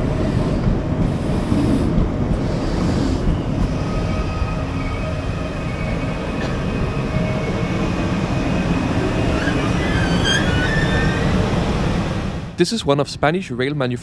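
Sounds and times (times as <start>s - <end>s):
train rumbling: 0.0s - 14.0s
train brakes squealing: 3.4s - 11.5s.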